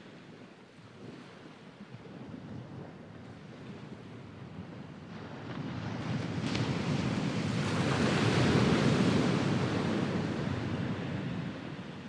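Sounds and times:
wave breaking on beach: 0:05.2 - 0:12.0.

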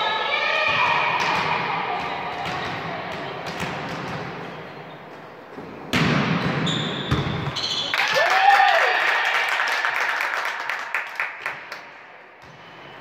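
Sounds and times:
ball bouncing: 0:00.7 - 0:04.4, 0:05.6 - 0:07.8
referee's whistle: 0:06.6 - 0:07.9.

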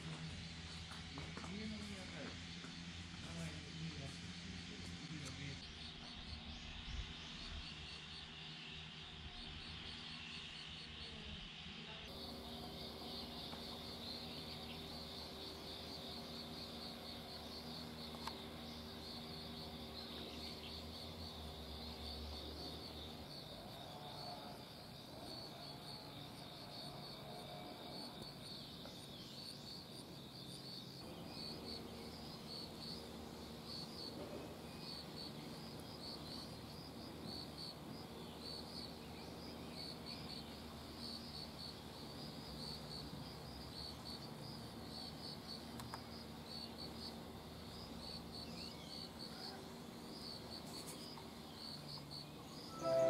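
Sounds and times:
insects chirping: 0:05.6 - 0:53.0.

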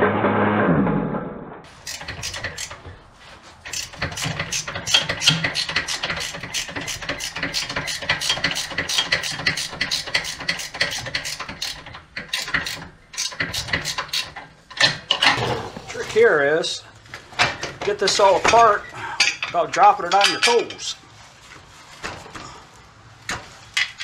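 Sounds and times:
ratchet wrench clicking: 0:01.7 - 0:02.8, 0:03.7 - 0:14.4.

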